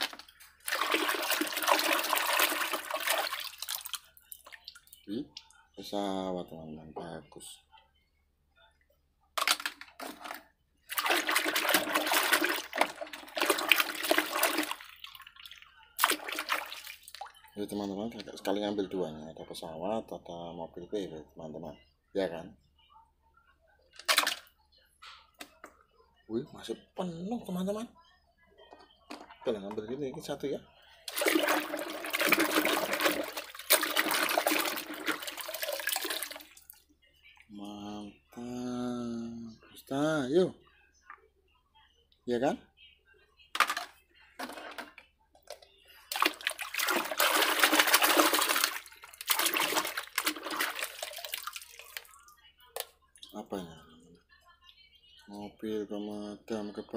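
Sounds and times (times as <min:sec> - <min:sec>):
water sloshing in a basin: 0:00.0 - 0:05.6, 0:09.4 - 0:18.6, 0:23.9 - 0:24.6, 0:31.0 - 0:36.9, 0:43.6 - 0:53.4.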